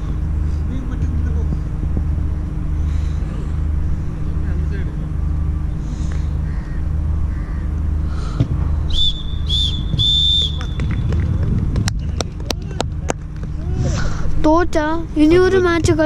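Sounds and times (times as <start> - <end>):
low rumble: 0.0 - 16.0
referee's whistle blasts: 8.9 - 10.8.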